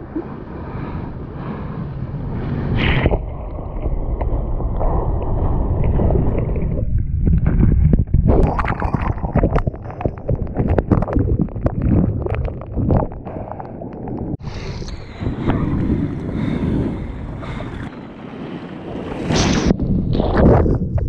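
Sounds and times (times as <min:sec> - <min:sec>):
muffled underwater rumble: 0:00.0 - 0:18.6
splashes and bursting bubbles: 0:02.8 - 0:14.8.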